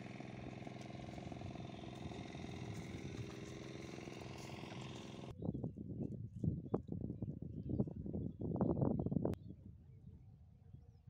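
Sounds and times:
engine running steadily: 0:00.0 - 0:05.3.

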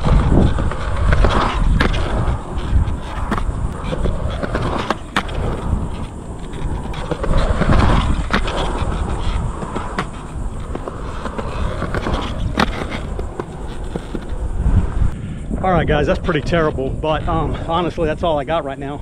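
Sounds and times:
skateboard clacks: 0:00.0 - 0:14.6
skateboard wheels rolling on concrete: 0:00.0 - 0:19.0.

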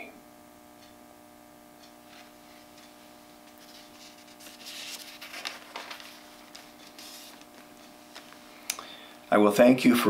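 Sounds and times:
faint steady hum of tones: 0:00.0 - 0:10.0
soft rustling: 0:02.0 - 0:08.6.

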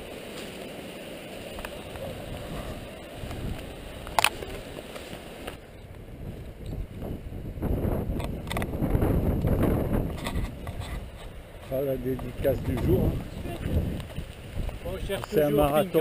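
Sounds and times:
wind rumble on microphone: 0:01.5 - 0:16.0.

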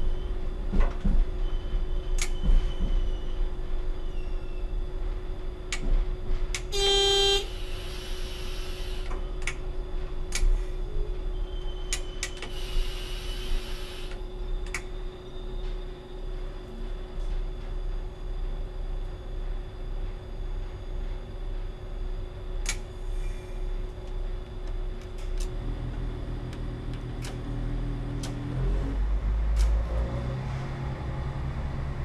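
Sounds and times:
diesel engine hum and rumble: 0:00.0 - 0:32.0.

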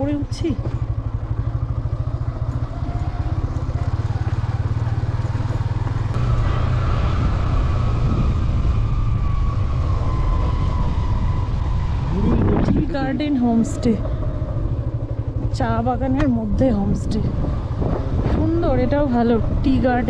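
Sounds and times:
motorcycle engine running: 0:00.0 - 0:20.0
high-pitched whine: 0:06.2 - 0:12.9.

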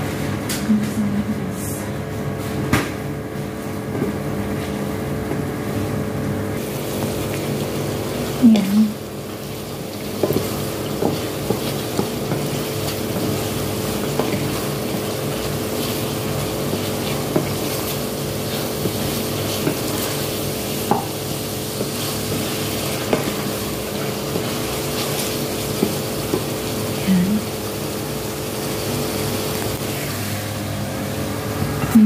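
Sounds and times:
food sizzling: 0:06.6 - 0:31.2
spatula tapping and scraping pot: 0:09.3 - 0:26.7.

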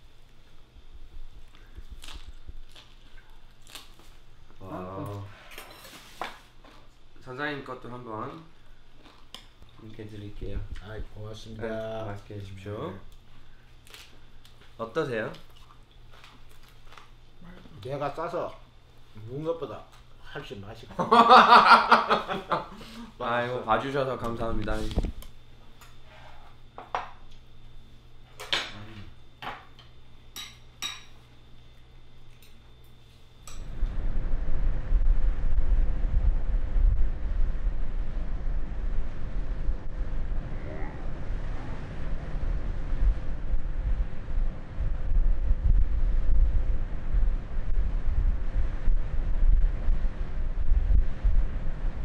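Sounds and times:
low steady hum: 0:00.0 - 0:52.0
tableware clinking on ceramic bowls: 0:30.4 - 0:31.2
wind buffeting microphone: 0:33.6 - 0:52.0.

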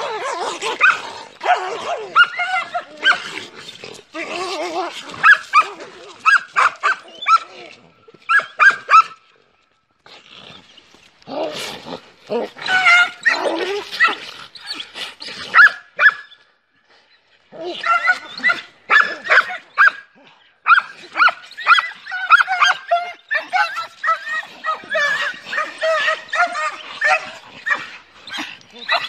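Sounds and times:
dogs yelping: 0:00.0 - 0:07.5, 0:12.4 - 0:16.3, 0:17.7 - 0:20.0, 0:20.6 - 0:29.0
dogs growling and barking: 0:00.0 - 0:09.2, 0:10.1 - 0:16.0, 0:17.5 - 0:29.0.

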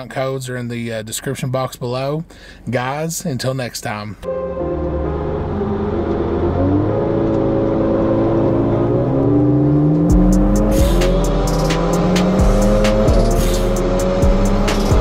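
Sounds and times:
car engine accelerating: 0:04.3 - 0:15.0
music with heavy bass beat: 0:10.0 - 0:15.0.

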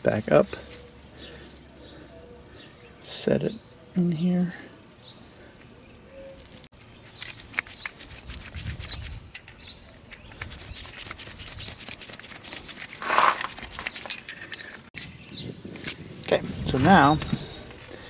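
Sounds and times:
small metal parts clicking and scraping: 0:06.4 - 0:14.9.

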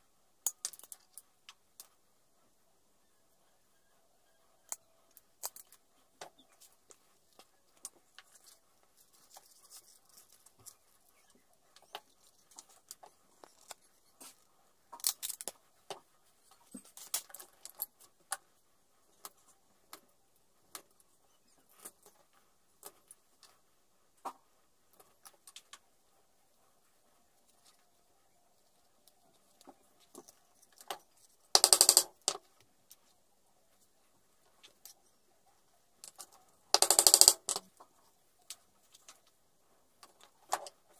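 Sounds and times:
metal rivets clicking and clinking: 0:00.4 - 0:01.2, 0:15.0 - 0:15.6, 0:30.1 - 0:33.0, 0:36.0 - 0:37.8.

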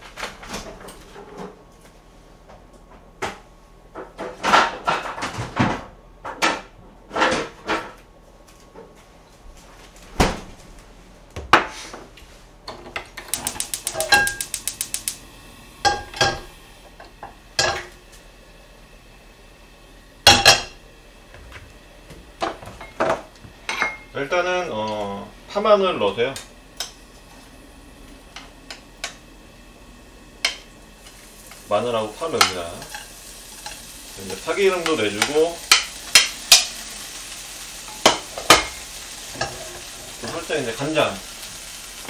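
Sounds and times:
utensils clinking on a wok: 0:12.7 - 0:15.2, 0:15.8 - 0:16.5, 0:17.6 - 0:17.9, 0:22.5 - 0:24.2, 0:31.5 - 0:36.8, 0:37.8 - 0:40.5
rapid clicks: 0:13.3 - 0:15.2.

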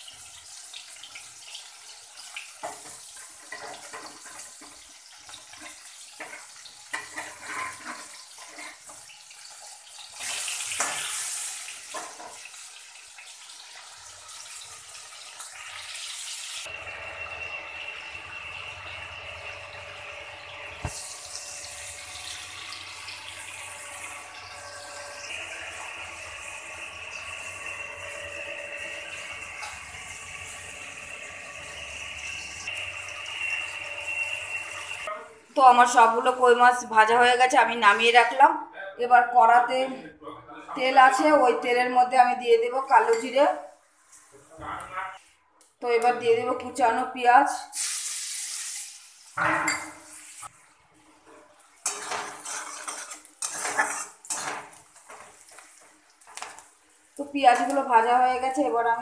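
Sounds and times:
fish sizzling in hot oil: 0:00.0 - 0:35.1, 0:47.5 - 0:50.7, 0:51.6 - 0:58.7
metal spatula scraping pan: 0:02.6 - 0:09.0, 0:51.3 - 0:55.4.

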